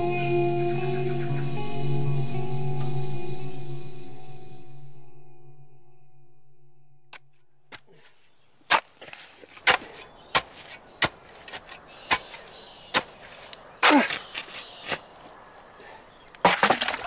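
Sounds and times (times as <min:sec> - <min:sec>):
soft ambient music tone: 0:00.0 - 0:07.1
spade chopping into wet mud: 0:08.7 - 0:15.0, 0:16.4 - 0:17.0.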